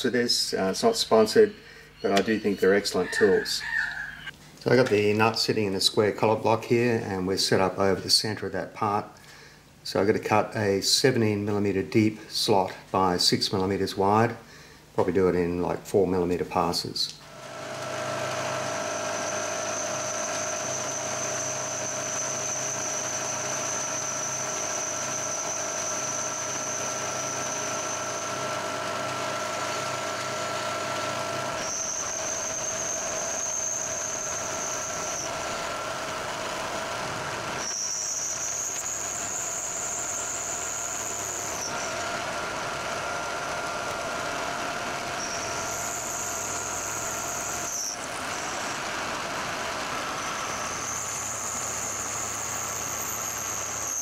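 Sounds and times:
high-pitched machine whine: 0.0s - 4.3s, 17.3s - 54.0s
milling machine hum: 17.3s - 54.0s.

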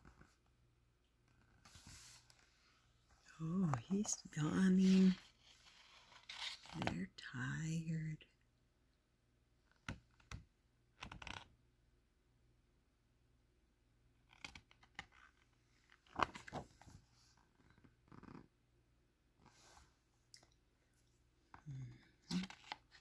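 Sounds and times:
paper pages rustling: 3.7s - 7.0s, 14.4s - 17.0s, 22.3s - 23.0s.

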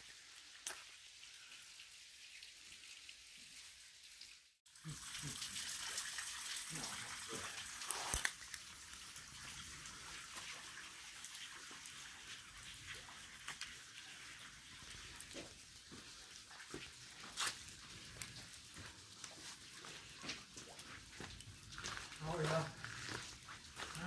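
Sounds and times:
footsteps crunching on leaves: 18.8s - 24.0s.

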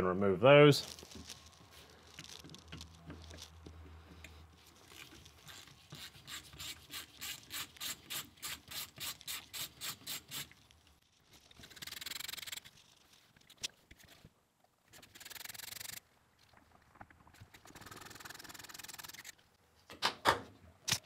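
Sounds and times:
scraping rub: 0.8s - 10.6s.

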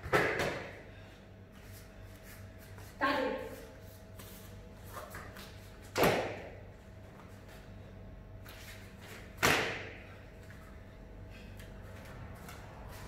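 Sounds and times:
sharp slap-like impacts: 9.4s - 10.0s.

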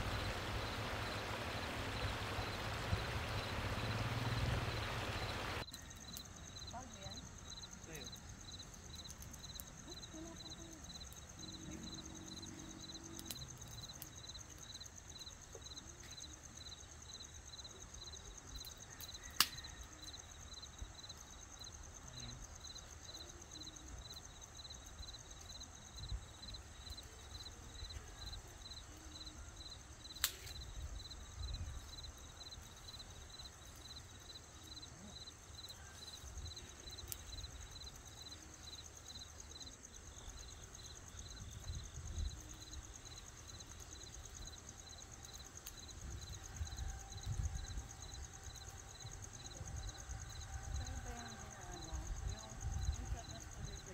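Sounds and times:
campfire popping and crackling: 0.0s - 20.0s, 29.9s - 31.0s, 35.5s - 46.5s
insects chirping: 0.0s - 53.9s
insects humming: 0.0s - 53.9s.

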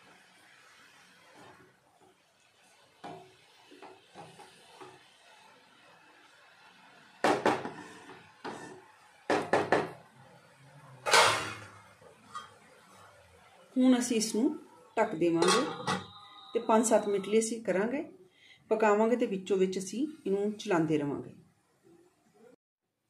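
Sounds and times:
utensils clattering against metal pan: 11.1s - 12.6s, 15.3s - 16.4s.

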